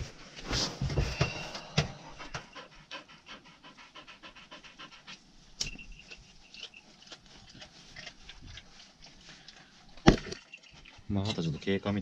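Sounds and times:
dog panting: 1.1s - 10.0s.

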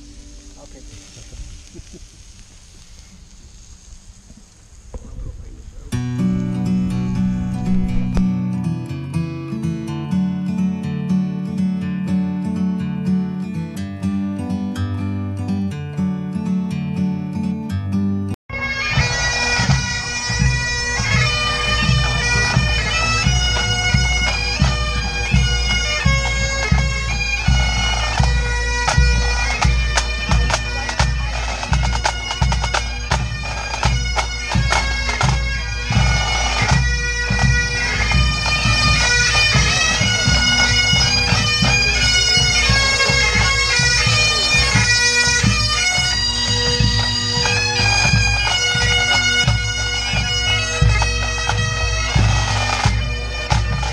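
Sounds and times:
bagpipes with drone: 0.0s - 1.7s, 18.5s - 53.9s
snare and bass drums beating: 6.3s - 8.4s, 19.0s - 53.9s.

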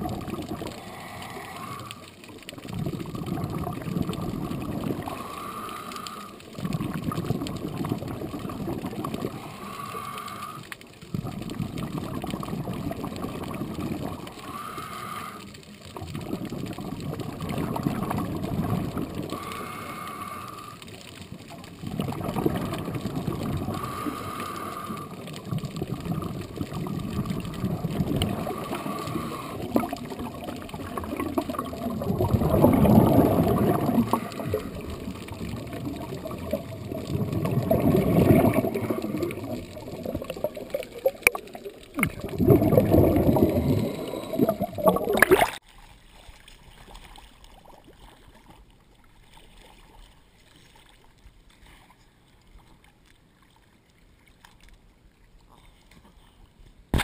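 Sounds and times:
water sloshing and gurgling: 0.0s - 57.0s
faint hiss: 5.0s - 6.6s, 9.1s - 11.1s, 19.2s - 21.4s.

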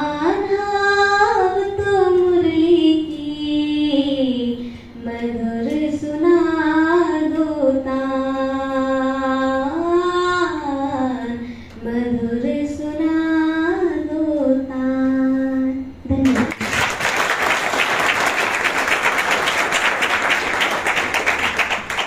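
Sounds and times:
young woman singing unaccompanied: 0.0s - 16.3s
singer breathing: 4.6s - 5.0s, 11.4s - 11.8s.

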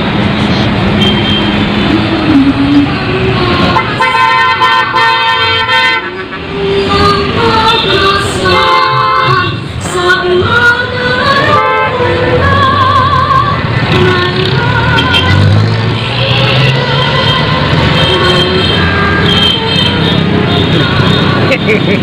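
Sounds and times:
engine and road noise: 0.0s - 22.0s
vehicle horns honking: 1.0s - 1.6s, 3.7s - 9.6s, 11.4s - 12.2s, 14.9s - 22.0s.

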